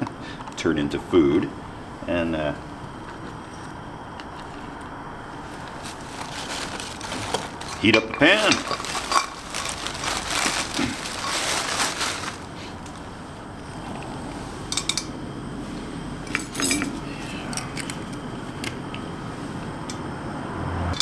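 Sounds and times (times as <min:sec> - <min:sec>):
camp stove hissing: 0:00.0 - 0:20.4
plastic bag rustling: 0:04.4 - 0:13.4.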